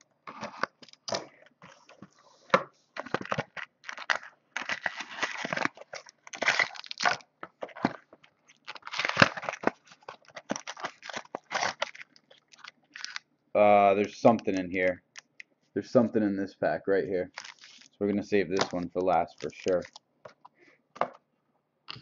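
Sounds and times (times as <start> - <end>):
foil wrappers tearing and crinkling: 0.3 - 2.0, 3.0 - 13.2, 17.3 - 17.9, 18.5 - 20.0.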